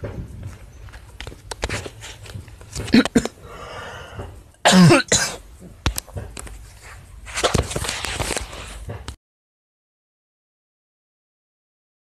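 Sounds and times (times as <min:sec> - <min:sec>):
rustling: 0:00.3 - 0:03.4, 0:05.6 - 0:09.2
person coughing: 0:02.8 - 0:03.4, 0:04.6 - 0:05.4.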